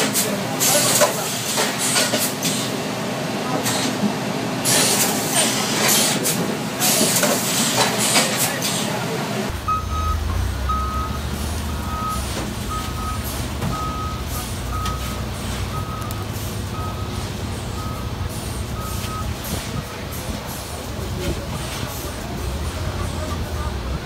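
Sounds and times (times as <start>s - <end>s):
forklift engine running: 0.0s - 24.0s
forklift reversing alarm beeping: 9.5s - 19.9s.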